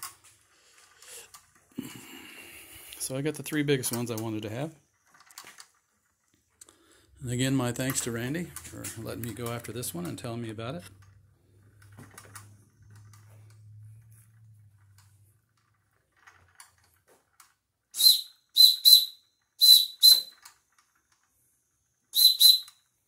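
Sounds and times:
shrill steam whistle toots: 0:18.0 - 0:20.4, 0:22.1 - 0:22.8
toy steam engine running: 0:22.1 - 0:22.7.

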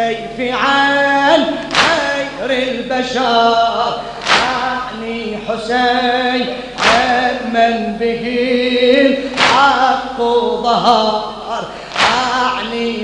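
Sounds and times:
men chanting a lament: 0:00.0 - 0:13.0
loud chest-beats: 0:01.6 - 0:02.4, 0:04.0 - 0:05.0, 0:06.5 - 0:07.4, 0:09.2 - 0:10.2, 0:11.3 - 0:12.8.

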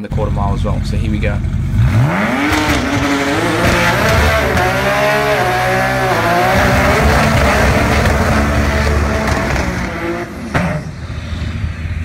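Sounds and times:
car engine revving hard: 0:01.4 - 0:11.1
tyres screeching: 0:02.0 - 0:10.9.

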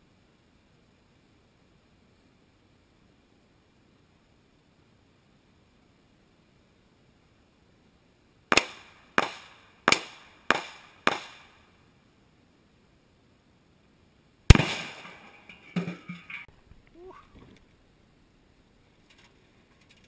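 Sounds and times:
rifle shots: 0:08.5 - 0:11.6, 0:14.5 - 0:15.5.

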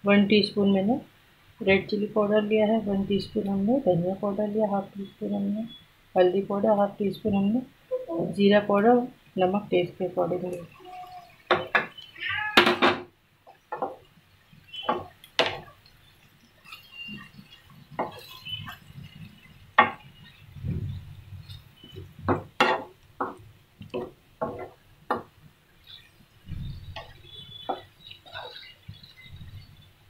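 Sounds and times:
wooden spatula scraping frying pan: 0:16.6 - 0:24.8, 0:25.9 - 0:29.8.

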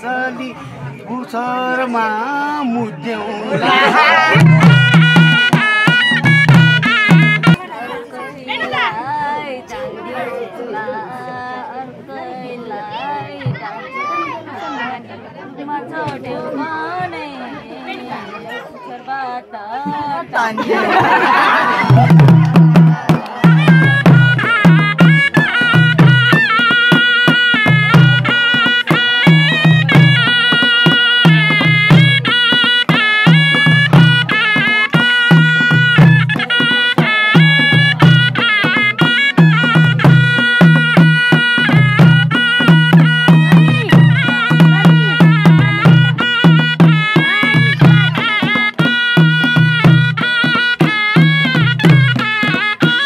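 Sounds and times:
reedy folk melody: 0:00.0 - 0:53.0
skin drum struck with sticks: 0:21.8 - 0:53.0.

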